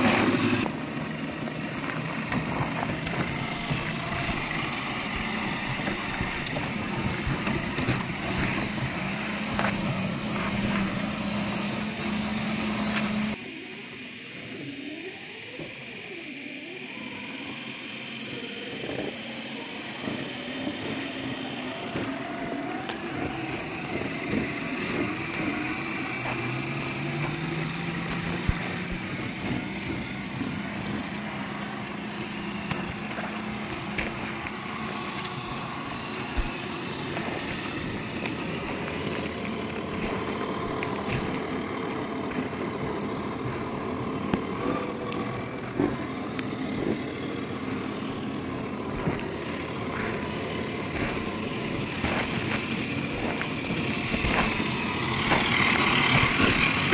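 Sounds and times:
sharp clicks from tyres: 0.0s - 13.4s, 18.7s - 56.9s
rc truck motor: 0.0s - 56.9s.

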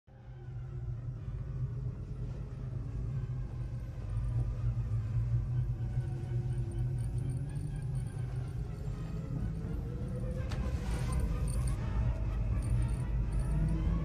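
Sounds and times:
low rumbling drone: 0.1s - 14.0s.

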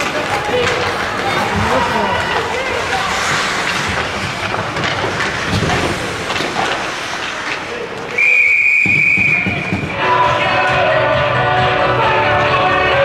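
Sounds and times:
rink noise with knocks: 0.0s - 8.2s
referee's whistle blast: 8.2s - 9.8s.

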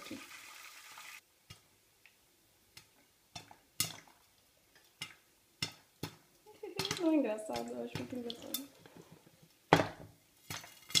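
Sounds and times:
popcorn popping: 4.8s - 8.6s, 9.7s - 11.0s.

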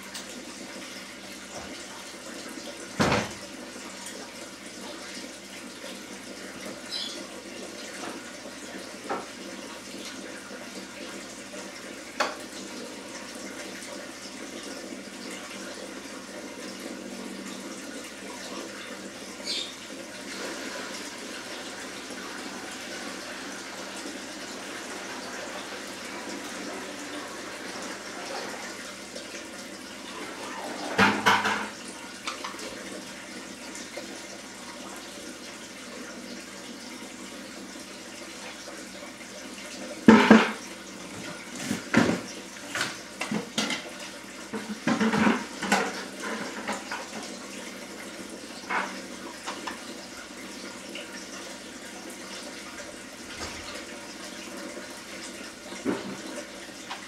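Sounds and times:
running water: 0.0s - 57.0s.

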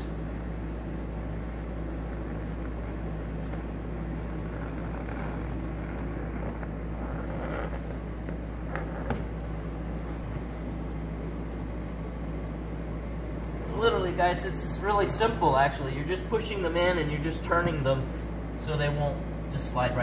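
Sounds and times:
steady low hum: 0.0s - 20.0s
leather seat cover rustling: 0.2s - 12.0s.

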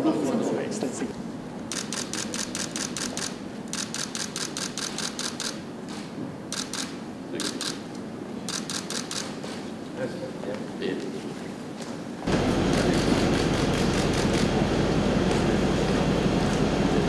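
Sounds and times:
camera shutter clicks: 1.7s - 7.8s, 8.5s - 9.6s.

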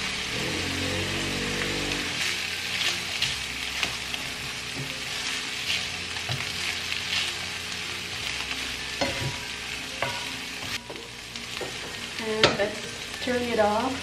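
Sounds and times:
food sizzling in a frying pan: 0.0s - 14.0s.

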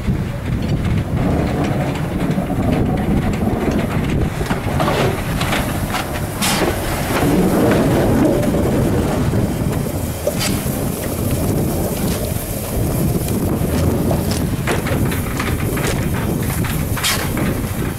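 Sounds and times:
steam locomotive running past: 0.0s - 17.9s
wind rumble on microphone: 0.0s - 17.9s.

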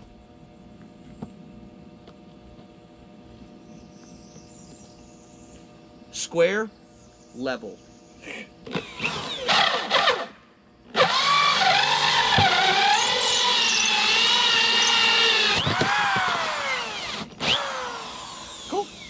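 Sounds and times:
power drill boring into wood: 8.7s - 10.3s, 10.9s - 19.0s.

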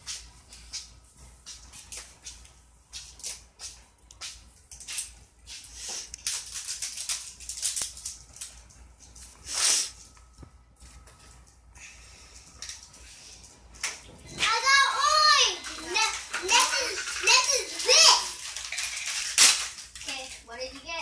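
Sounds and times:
toys clicking and rattling: 4.1s - 9.3s, 12.4s - 21.0s
plastic packaging crinkling: 6.2s - 8.6s, 15.1s - 20.3s.

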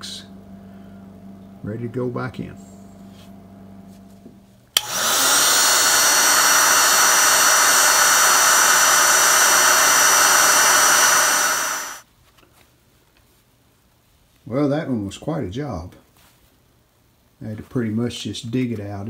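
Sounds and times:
heat gun fan whine: 4.0s - 12.0s
heat gun switch click: 4.8s - 11.9s.

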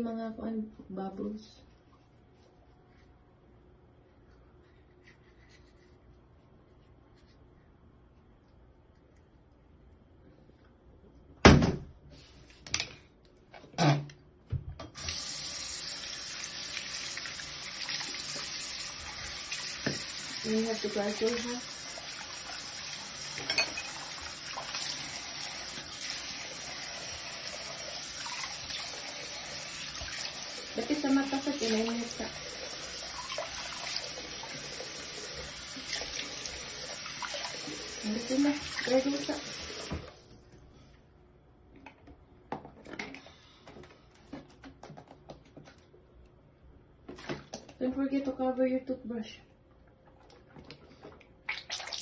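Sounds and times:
tap running into a sink: 19.7s - 20.2s.

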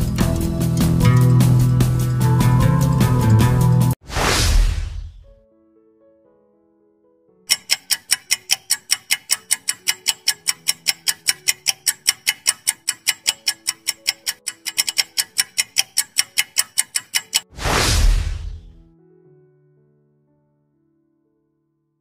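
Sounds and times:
clock ticking: 7.5s - 17.5s.

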